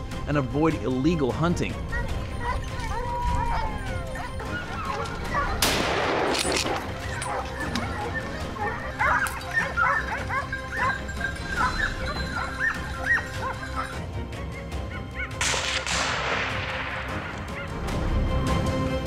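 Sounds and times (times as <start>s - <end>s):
dogs yelping and barking: 1.9s - 15.4s.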